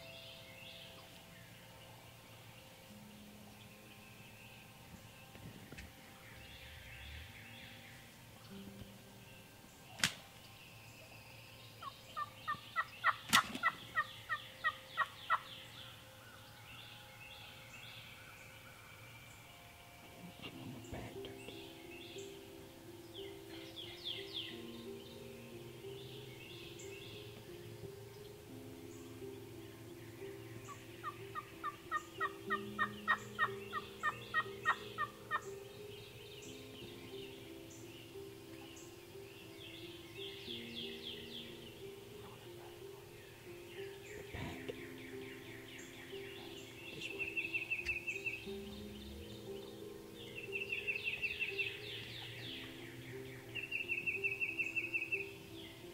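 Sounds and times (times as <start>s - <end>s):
wild turkey calling: 6.0s - 55.9s
sharp click: 10.0s - 10.3s
wild turkey yelping: 11.8s - 16.4s, 30.2s - 35.7s.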